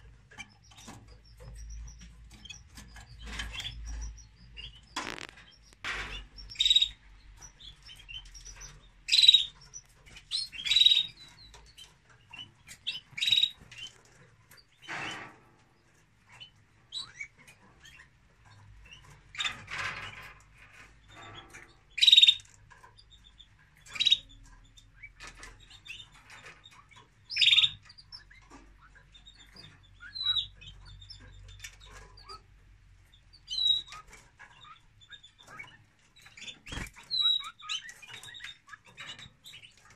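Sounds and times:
canaries chirping: 0.0 - 39.9
rustling in nest: 3.4 - 6.9.

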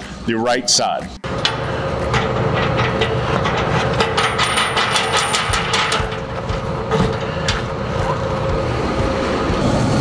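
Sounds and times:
steady low rumble: 1.2 - 10.0
metallic clicking of bolts: 1.4 - 7.6.

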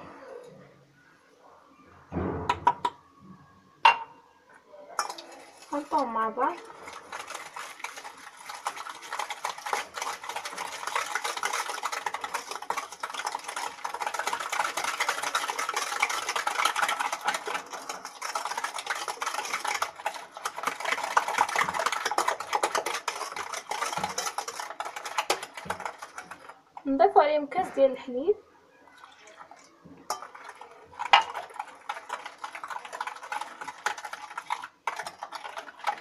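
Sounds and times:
whisk beating in a glass bowl: 5.0 - 27.2, 30.1 - 36.0.

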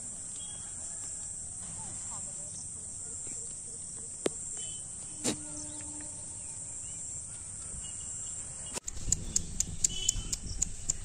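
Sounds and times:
faint bird chirps: 1.8 - 11.0
sharp bird chips: 7.6 - 11.0.

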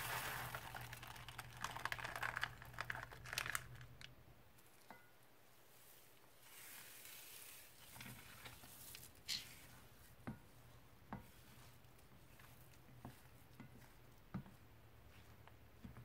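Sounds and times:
crunchy slime crackling: 0.0 - 4.1.

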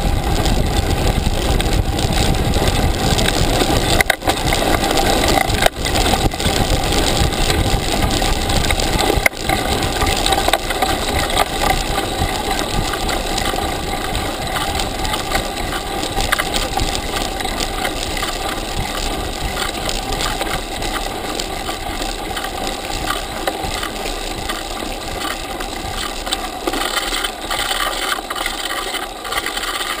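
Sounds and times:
bike frame and tyres rattling: 0.0 - 30.0
wind rush on microphone: 0.0 - 30.0.

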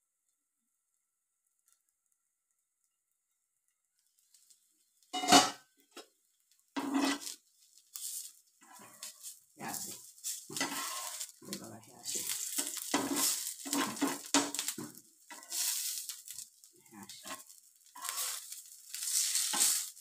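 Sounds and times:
cutlets sizzling in oil: 4.0 - 20.0.

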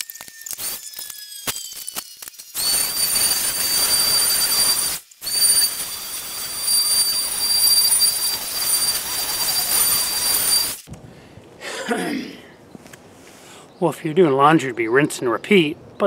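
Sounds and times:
electric sander on wood: 0.0 - 10.9.

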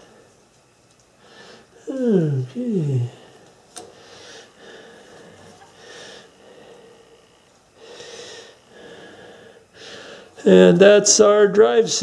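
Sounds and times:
person breathing out through nose: 7.8 - 10.4.

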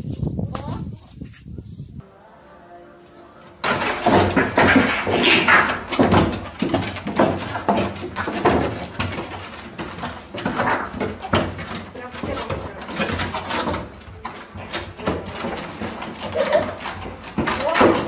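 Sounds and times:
scuffling and thumps on wooden deck: 3.6 - 18.0
cats screeching and hissing: 3.8 - 6.4.

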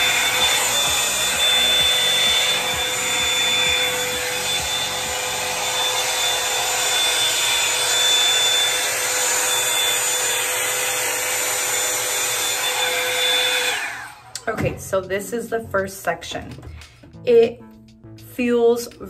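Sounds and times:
hot-air brush fan whining: 0.0 - 14.8.

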